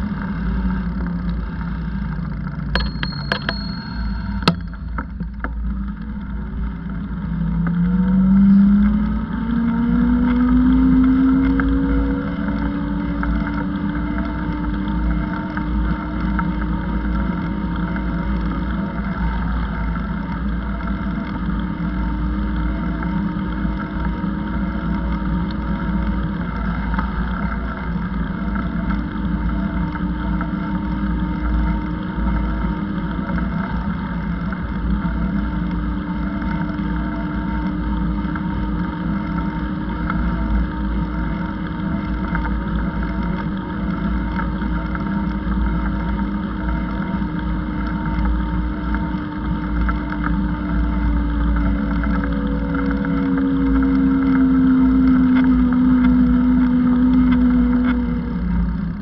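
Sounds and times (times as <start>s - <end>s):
mechanical drone of held tones: 0.0s - 59.0s
wind rumble on microphone: 4.4s - 59.0s.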